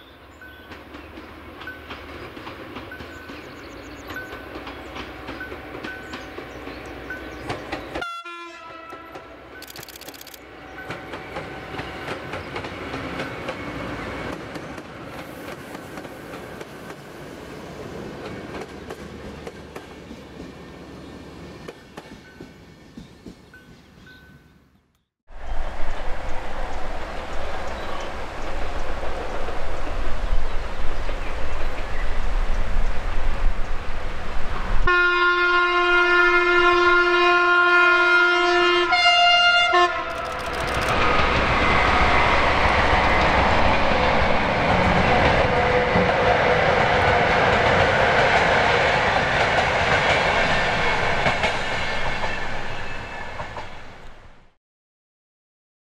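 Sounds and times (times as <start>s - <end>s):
train wheels on rails: 0.2s - 8.0s, 8.9s - 24.4s, 25.4s - 34.9s, 40.0s - 54.3s
locomotive horn blasts: 8.0s - 9.4s, 34.8s - 40.2s
steady rushing noise: 25.3s - 34.8s.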